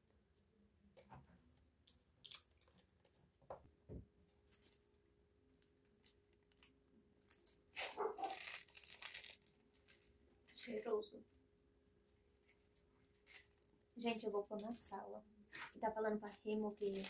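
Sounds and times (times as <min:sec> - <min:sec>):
packaging crinkling: 0:05.9 - 0:10.9, 0:13.1 - 0:13.6, 0:16.1 - 0:17.0
plastic packet rustling: 0:05.9 - 0:11.0, 0:13.0 - 0:14.8, 0:15.5 - 0:17.0.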